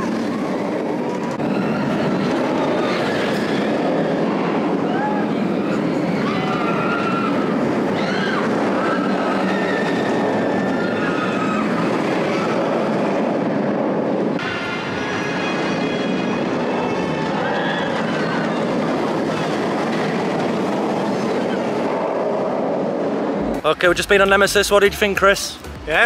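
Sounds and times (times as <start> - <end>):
roller coaster rumbling on track: 0.0 - 26.0.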